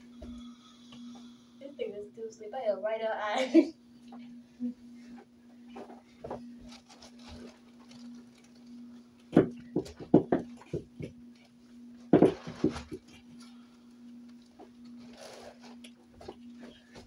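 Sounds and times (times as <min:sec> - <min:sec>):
steady low hum: 0:00.0 - 0:17.0
knocks and thumps: 0:09.3 - 0:11.2, 0:12.1 - 0:13.2.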